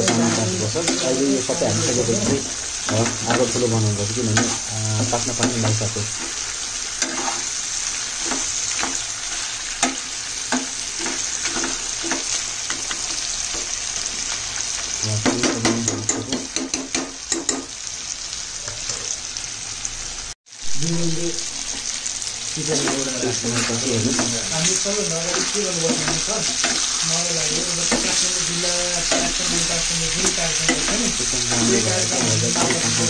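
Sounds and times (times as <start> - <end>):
curry sizzling in frying pan: 0.0 - 33.0
metal spoon scraping pan: 4.3 - 13.7, 22.7 - 33.0.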